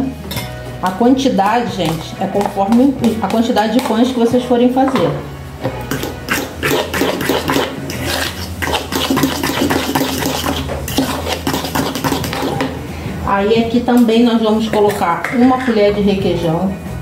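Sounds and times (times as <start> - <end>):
metal utensil beating in bowl: 0.3 - 12.8.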